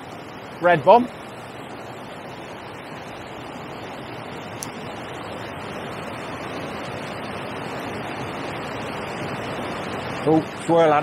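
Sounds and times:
river water pouring over a weir: 0.0 - 11.0.

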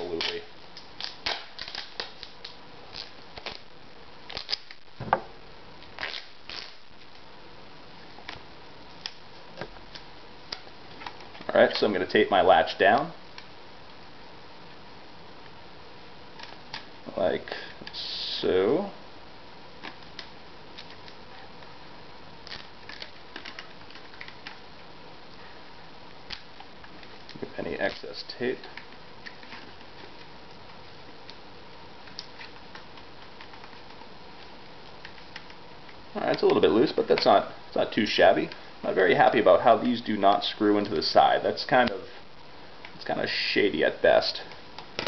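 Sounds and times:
hands handling plastic and tape: 0.0 - 3.7, 4.3 - 5.2, 5.8 - 7.2, 8.0 - 11.9, 16.3 - 17.0, 19.8 - 21.8, 22.4 - 25.4, 26.2 - 38.6
duct tape ripping and crinkling: 0.0 - 5.2, 5.8 - 7.2, 16.3 - 17.0, 22.4 - 24.6, 26.2 - 31.4
low hiss: 0.0 - 45.0.

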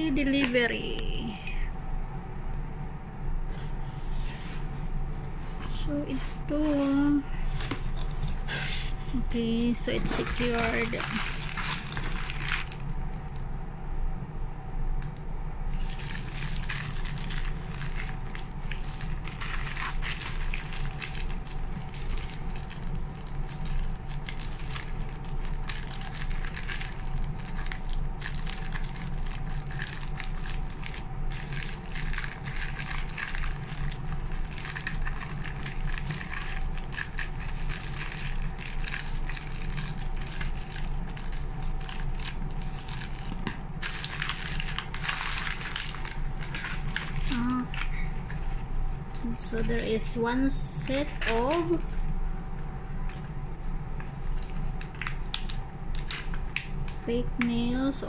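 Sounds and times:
steady low hum: 0.0 - 58.0
plastic mailer bag crinkling: 6.7 - 13.0, 15.7 - 52.1, 54.0 - 56.8
scissors cutting plastic: 9.9 - 12.8, 50.9 - 51.8.

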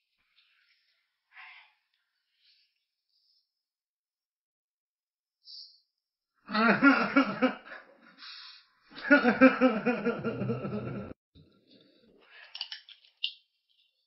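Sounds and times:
person laughing: 6.5 - 7.8, 9.0 - 11.2.

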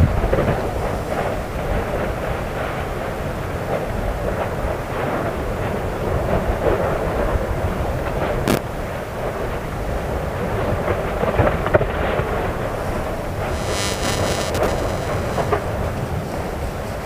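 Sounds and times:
sharp crack: 8.4 - 8.7.

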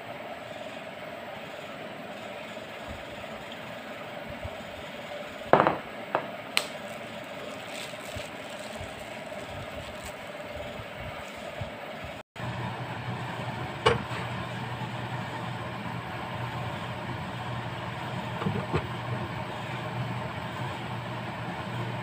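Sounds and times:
steady background hum: 0.0 - 22.0
glass bottle knocking on countertop: 5.6 - 6.3.

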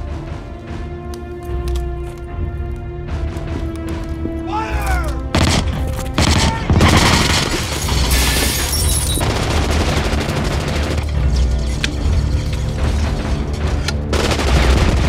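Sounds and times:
orchestral score music: 0.0 - 15.0
minigun firing bursts: 5.3 - 8.3, 9.2 - 11.1, 14.1 - 15.0.

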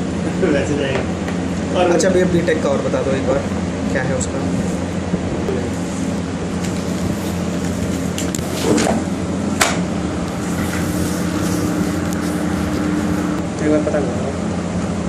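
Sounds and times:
low mechanical hum: 0.0 - 15.0
sharp knocks: 9.6 - 9.9.

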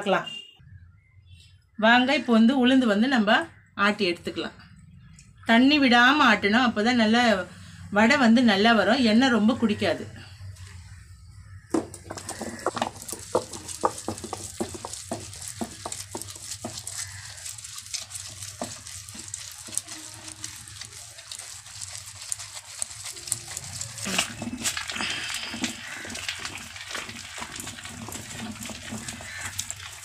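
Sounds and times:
stone grinder scraping lentils: 11.7 - 30.0.

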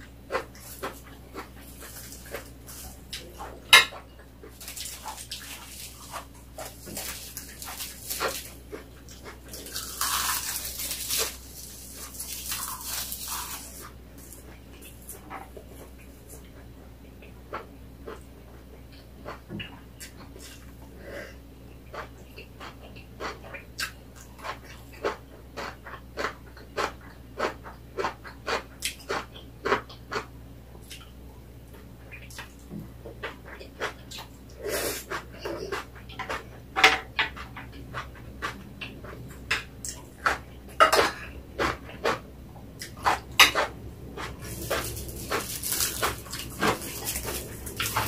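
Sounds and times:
crinkling rustle of seaweed sheet: 4.6 - 8.6, 9.4 - 15.1, 44.3 - 48.0
chewing and lip-smacking: 21.8 - 36.7, 37.3 - 48.0.

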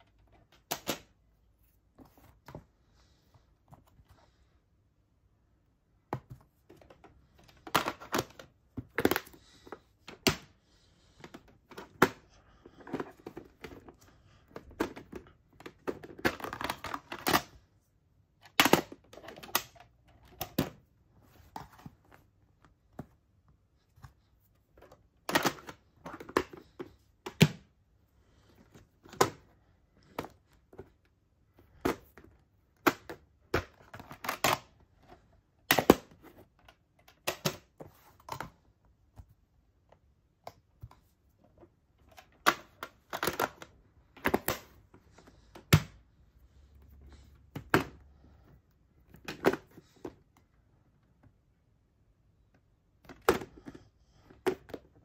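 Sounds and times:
plastic cases clicking and rattling: 6.1 - 10.5, 11.1 - 17.6, 18.3 - 22.2, 24.0 - 27.8, 28.5 - 38.7, 40.5 - 46.0, 47.1 - 50.4.

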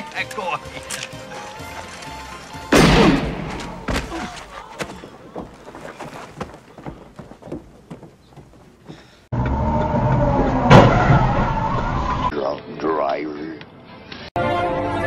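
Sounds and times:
sharp bang: 2.7 - 4.0.

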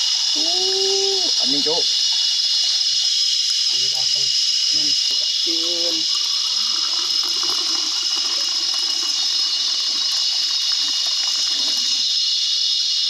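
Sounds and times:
insects droning: 0.0 - 13.0
coffee pouring into a cup: 4.9 - 12.2.

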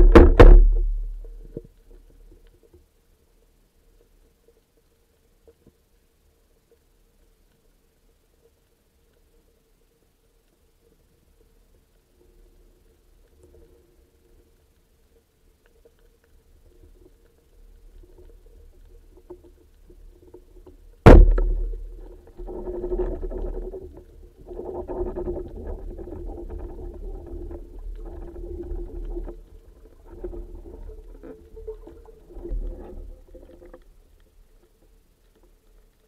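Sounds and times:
muffled underwater rattling and knocking: 0.0 - 1.7, 21.1 - 29.4.

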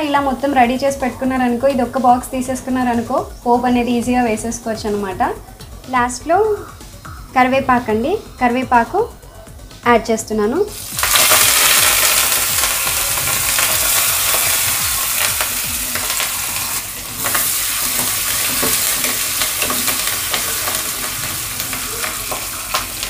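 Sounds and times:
leaves sizzling in hot oil: 10.7 - 23.0
metal spoon scraping a pan: 15.9 - 23.0.

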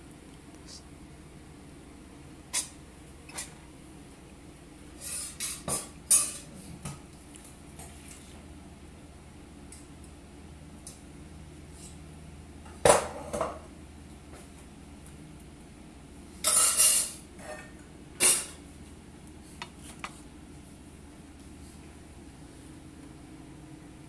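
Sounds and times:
cookware and utensils clanking: 5.0 - 6.5, 16.4 - 18.6.

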